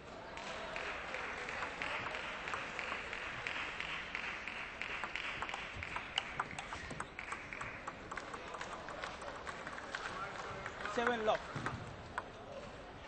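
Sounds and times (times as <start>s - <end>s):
audience applauding: 0.4s - 11.5s.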